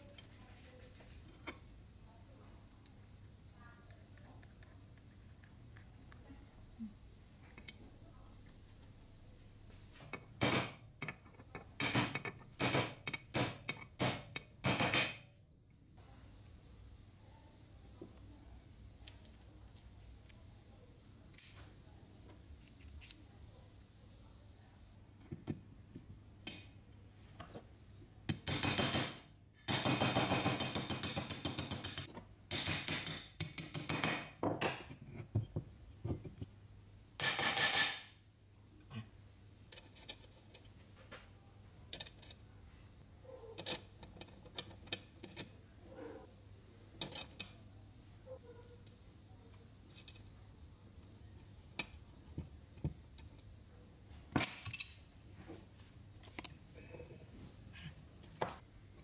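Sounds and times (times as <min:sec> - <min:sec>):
metal parts clinking and scraping: 0:22.6 - 0:23.2, 0:39.7 - 0:40.7, 0:49.9 - 0:50.3, 0:54.3 - 0:55.0.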